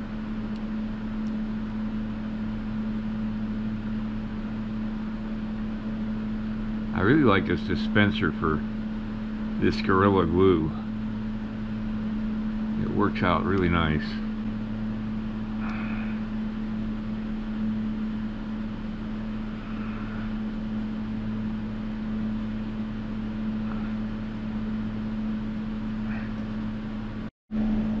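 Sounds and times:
room heater humming: 0:00.0 - 0:28.0.

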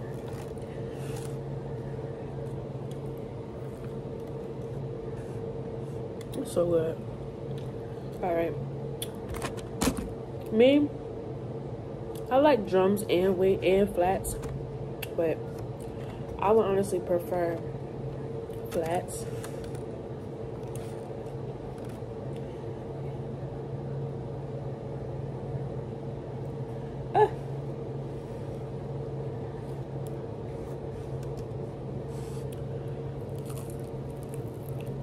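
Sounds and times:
room hum: 0:00.0 - 0:35.0
person chewing food: 0:33.2 - 0:35.0.

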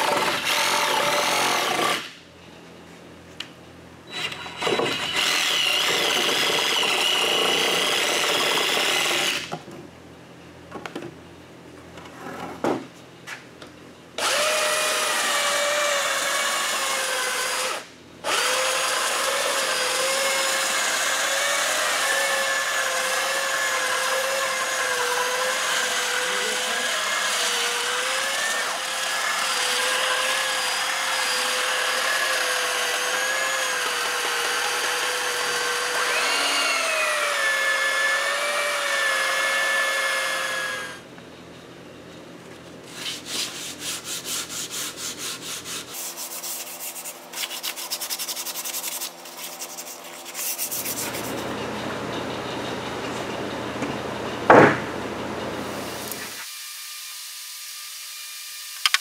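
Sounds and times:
power tool high whine: 0:14.2 - 0:41.0.

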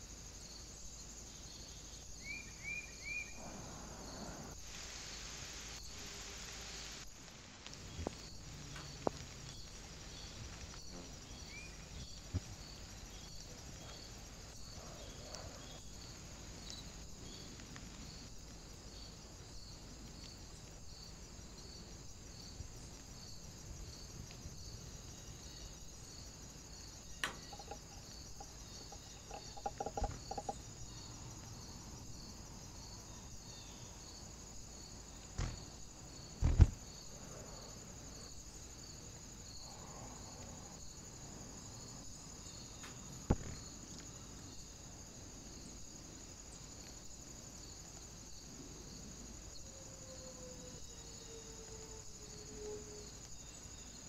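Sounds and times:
insect chirring: 0:00.0 - 0:54.0
bird pecking on a clay dish: 0:27.2 - 0:30.6.

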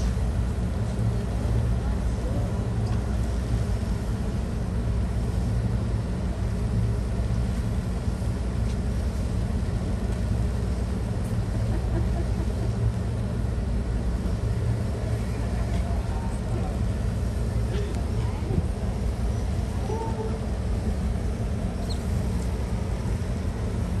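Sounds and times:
boat engines humming: 0:00.0 - 0:24.0.

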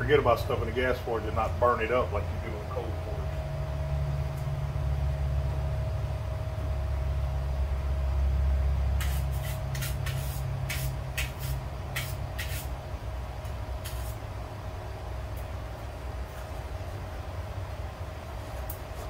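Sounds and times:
wire brush scraping steel: 0:09.0 - 0:12.8, 0:13.8 - 0:14.2.

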